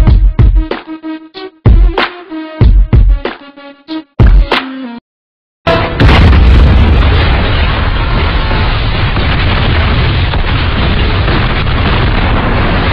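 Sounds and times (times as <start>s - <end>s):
explosion blast: 5.7s - 12.9s
low rumble of fireball: 6.0s - 12.9s.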